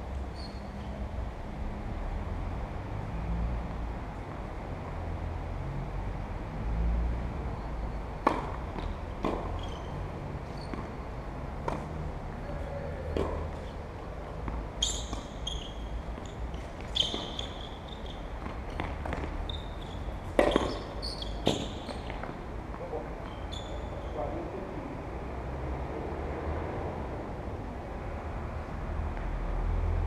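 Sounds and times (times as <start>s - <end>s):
tennis ball knocks: 8.2s - 9.5s, 13.1s - 13.7s, 20.3s - 22.8s.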